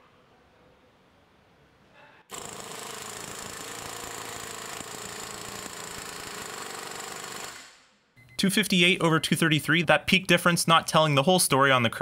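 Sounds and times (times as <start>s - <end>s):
impact wrench rattling: 2.3s - 7.8s.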